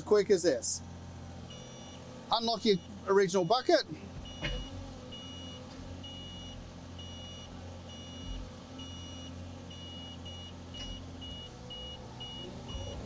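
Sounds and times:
diesel engine running: 0:00.0 - 0:13.0
excavator warning alarm beeping: 0:01.5 - 0:03.0, 0:04.2 - 0:13.0.

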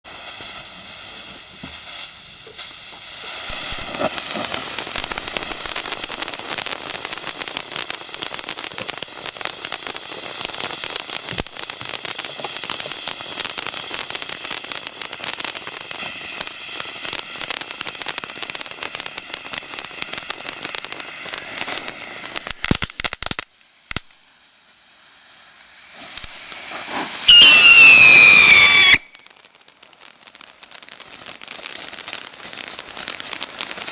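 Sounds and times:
sharp firework pops: 0:00.0 - 0:24.3, 0:25.7 - 0:33.9
crackling sparks: 0:00.0 - 0:33.9
falling firework whistle: 0:00.1 - 0:33.9.

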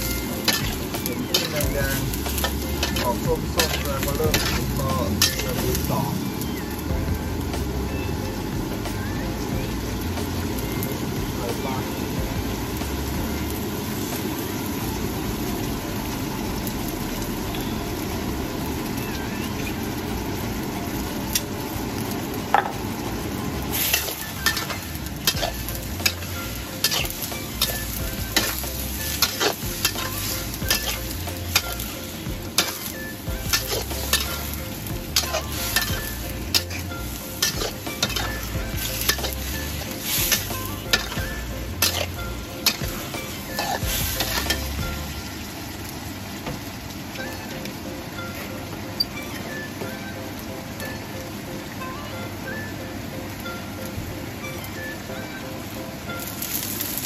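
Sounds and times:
metal spatula scraping a wok: 0:00.0 - 0:05.9, 0:23.8 - 0:44.8
seafood sizzling in a wok: 0:00.0 - 0:57.0.

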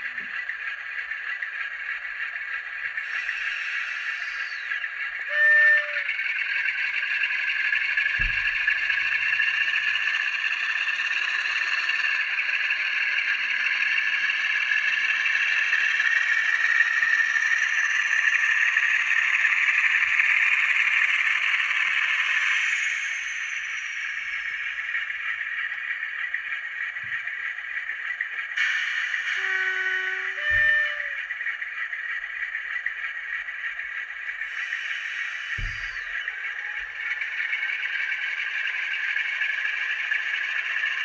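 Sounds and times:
diesel engine running: 0:00.0 - 0:41.0
faint high whine: 0:00.1 - 0:41.0
model train horn: 0:03.0 - 0:09.8, 0:28.6 - 0:31.5.

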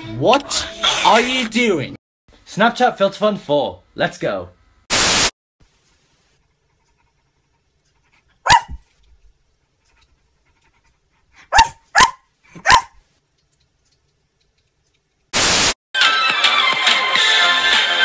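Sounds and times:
loud hiss: 0:04.9 - 0:05.3, 0:15.4 - 0:15.8
dog barks: 0:08.4 - 0:08.9, 0:11.4 - 0:13.0.

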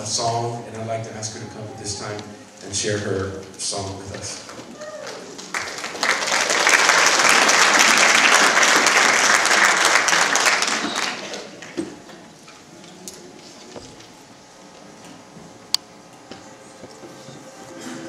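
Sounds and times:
congregation applauding: 0:04.3 - 0:11.8.

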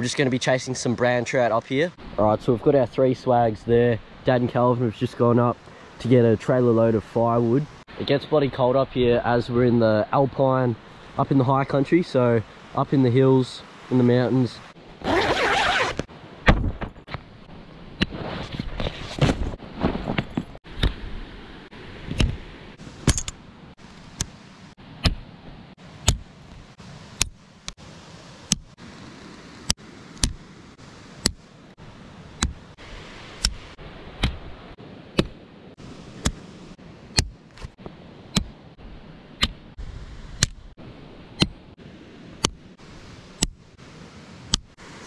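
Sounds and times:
faint steady hiss: 0:00.0 - 0:18.4, 0:20.6 - 0:45.0
tent poles clacking: 0:15.0 - 0:17.3, 0:22.1 - 0:24.4.

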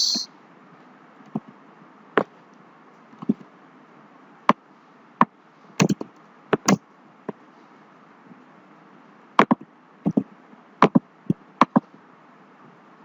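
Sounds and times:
mouse and keyboard clicks: 0:05.8 - 0:06.8, 0:11.6 - 0:11.9.

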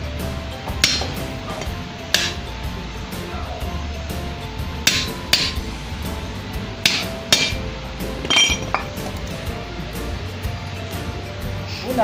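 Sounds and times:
metal tool knocking on steel: 0:08.2 - 0:09.2.

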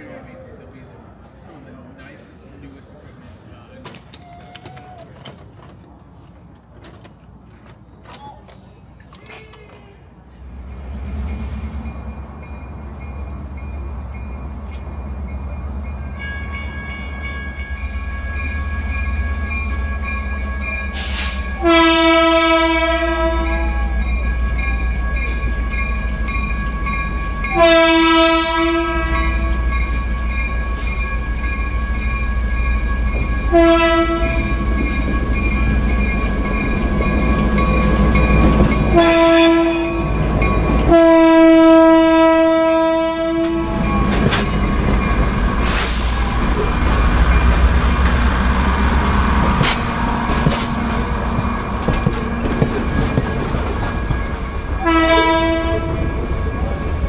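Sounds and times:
train horn blasts: 0:21.0 - 0:24.0, 0:27.5 - 0:29.7, 0:33.5 - 0:34.6, 0:38.9 - 0:40.2, 0:40.8 - 0:44.1, 0:54.8 - 0:56.2.

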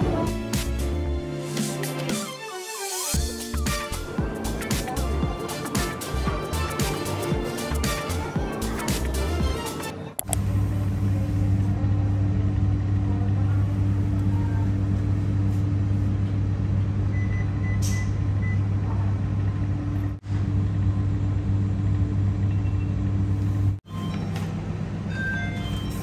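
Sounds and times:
refrigerator electrical hum: 0:10.2 - 0:26.0.

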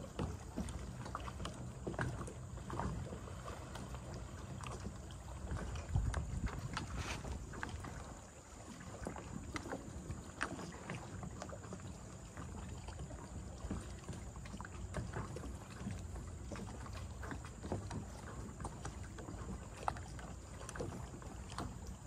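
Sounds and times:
wavelets lapping at shore: 0:00.0 - 0:22.0
wind rumble on microphone: 0:05.3 - 0:08.2.

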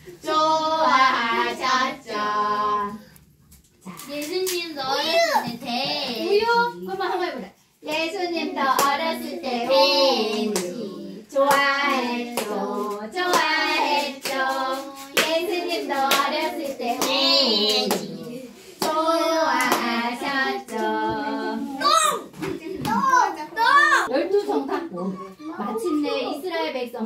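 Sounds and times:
children singing: 0:00.2 - 0:03.0, 0:08.3 - 0:22.0
hands clapping: 0:19.6 - 0:19.9.

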